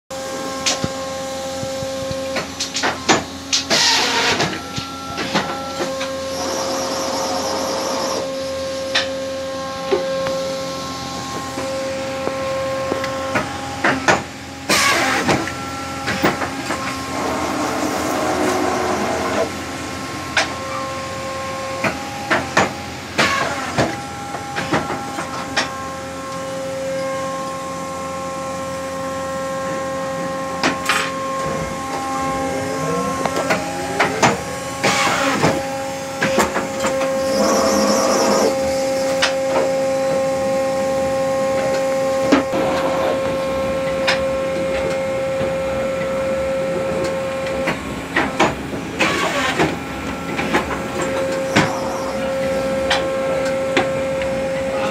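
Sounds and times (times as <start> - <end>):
paper guillotine humming: 0.1 - 54.9.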